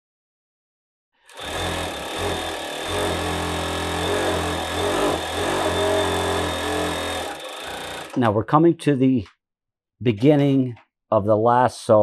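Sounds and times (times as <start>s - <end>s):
coverstitch sewing machine sewing: 1.3s - 8.3s.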